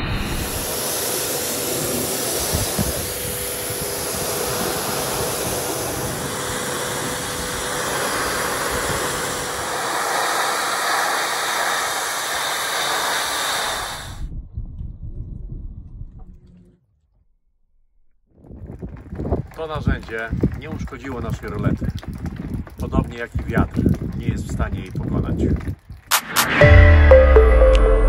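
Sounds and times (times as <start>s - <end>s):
pressure washer spraying metal: 0.3s - 14.2s.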